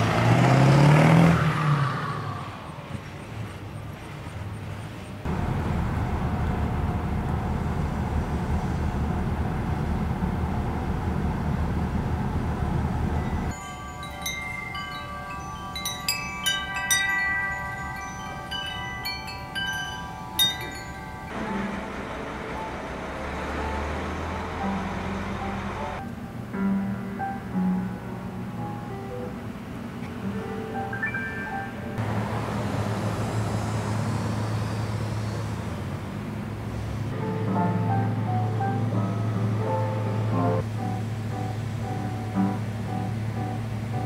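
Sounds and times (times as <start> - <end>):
metal wind chimes ringing: 13.2 - 22.0.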